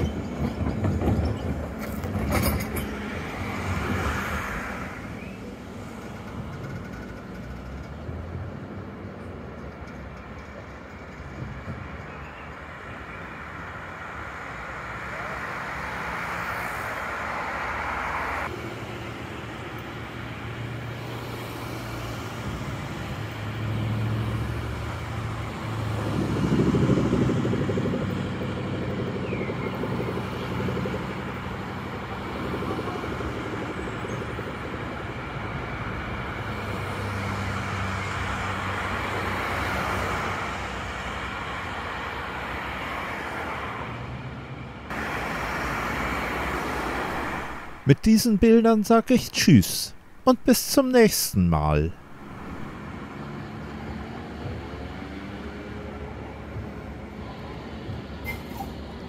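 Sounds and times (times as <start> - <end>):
cars driving past: 1.5 - 9.0, 13.4 - 27.5, 35.5 - 47.9, 52.0 - 58.9.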